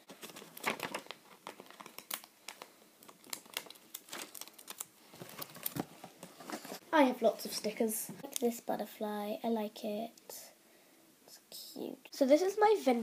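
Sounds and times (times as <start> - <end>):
sticker sheet crinkling: 0.0 - 5.8.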